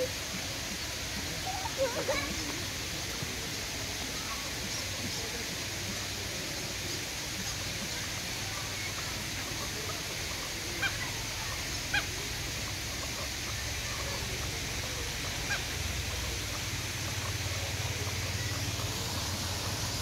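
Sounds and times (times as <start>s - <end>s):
steady background noise: 0.0s - 20.0s
waterfowl honking: 8.6s - 20.0s.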